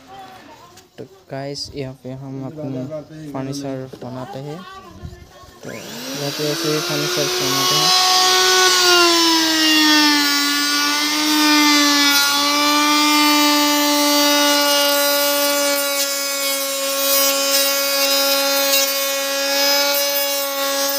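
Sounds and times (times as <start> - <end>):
router motor whine cutting wood: 5.6 - 20.9.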